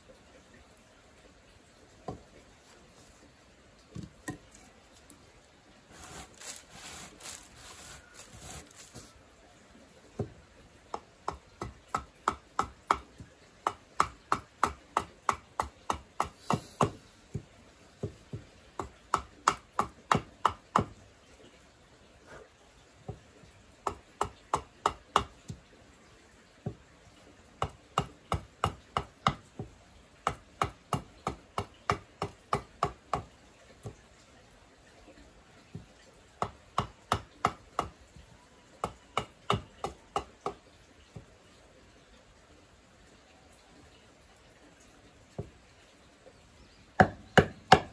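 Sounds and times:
hatchet chopping wood: 0:05.9 - 0:09.1, 0:10.2 - 0:21.0, 0:23.8 - 0:25.6, 0:27.6 - 0:34.0, 0:36.4 - 0:38.0, 0:38.8 - 0:40.6, 0:47.0 - 0:47.9.

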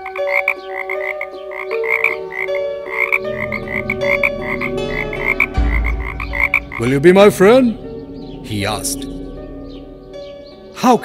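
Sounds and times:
frog croaking rapidly: 0:00.0 - 0:06.8.

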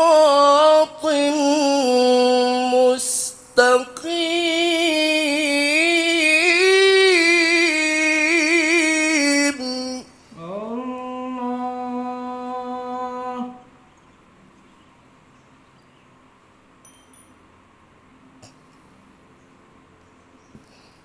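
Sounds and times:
man reciting melodically: 0:00.0 - 0:13.8.

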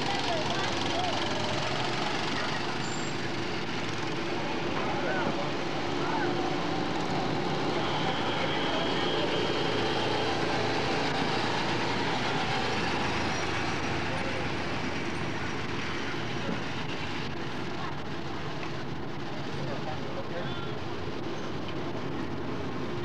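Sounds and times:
go-kart engines running: 0:00.0 - 0:23.0.

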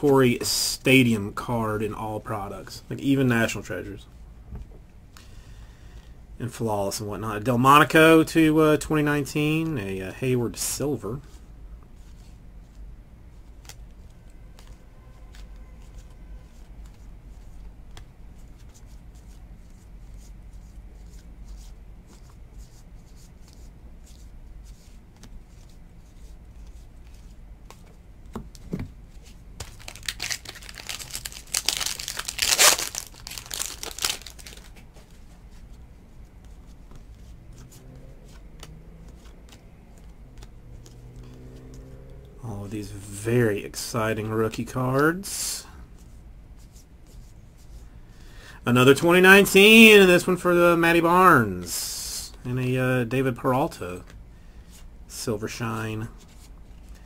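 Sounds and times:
card wrapper ripping: 0:29.6 - 0:34.8
low hum: 0:32.1 - 0:43.1
cards sliding and flicking: 0:36.4 - 0:41.8.

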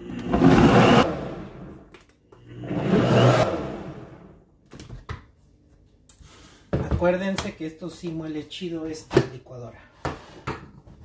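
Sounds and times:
kitchen blender running: 0:00.0 - 0:01.6, 0:02.4 - 0:04.3.

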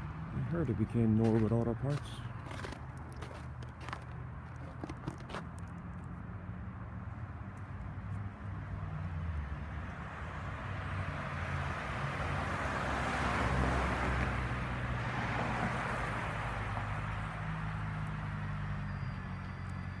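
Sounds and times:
car passing by: 0:08.2 - 0:20.0.

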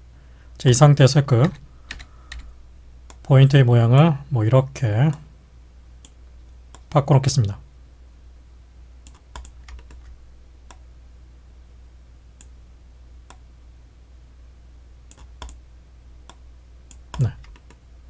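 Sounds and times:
computer keyboard and mouse clicks: 0:09.0 - 0:10.8, 0:15.1 - 0:15.6, 0:16.3 - 0:17.8.

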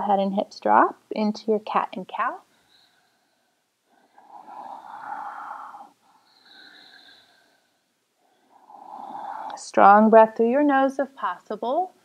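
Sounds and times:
woman breathing through nose: 0:02.5 - 0:09.6.

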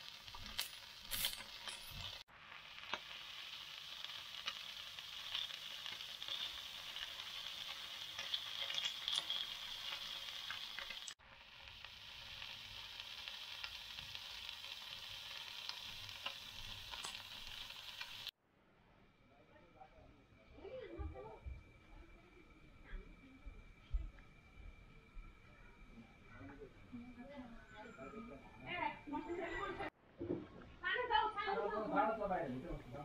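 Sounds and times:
food sizzling in frying pan: 0:00.0 - 0:18.4.

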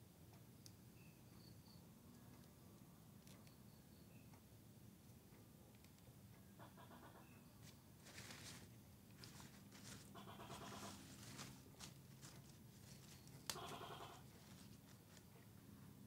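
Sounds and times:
rasping animal calls: 0:06.6 - 0:07.4, 0:09.9 - 0:11.6, 0:13.5 - 0:14.5
leaves rustling and crackling: 0:07.6 - 0:15.3.

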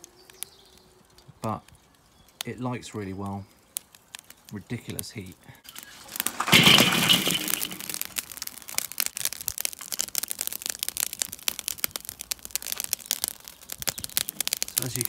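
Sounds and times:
hot coals crackling and popping: 0:00.0 - 0:15.0
charcoal clattering onto grill grate: 0:05.7 - 0:08.9.

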